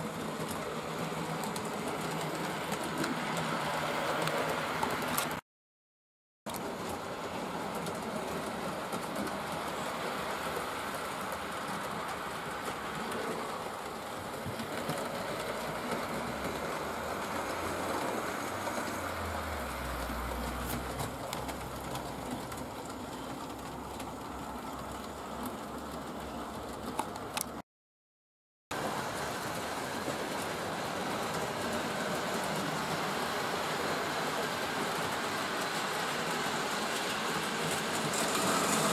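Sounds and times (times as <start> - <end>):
wheels clicking over rail joints: 0.0 - 5.4, 6.5 - 27.6, 28.8 - 38.9
model train motor whirr: 28.9 - 38.9.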